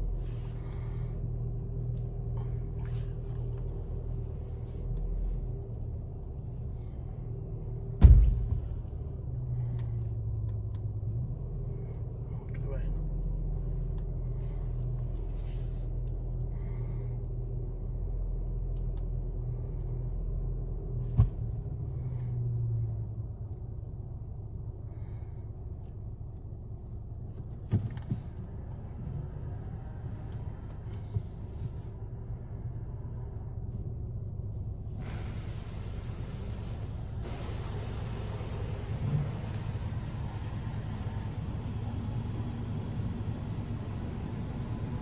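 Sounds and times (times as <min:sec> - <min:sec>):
car wash rumble: 0:34.6 - 0:45.0.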